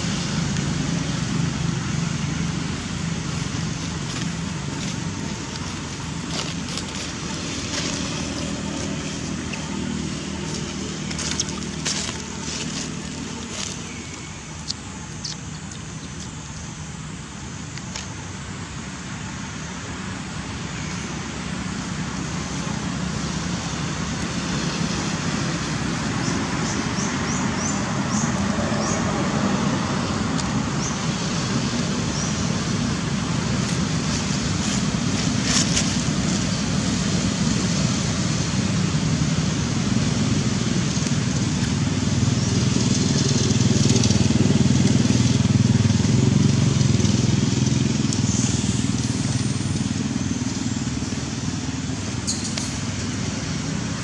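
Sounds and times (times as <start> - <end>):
low engine rumble: 0.0 - 54.0
road traffic noise: 0.0 - 54.0.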